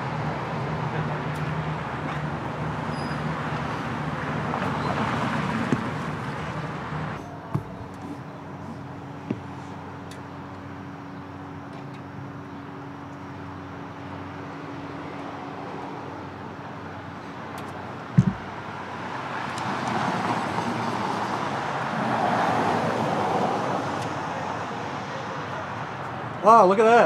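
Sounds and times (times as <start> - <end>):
traffic hum: 0.0 - 27.0
sharp low thump: 18.2 - 18.5.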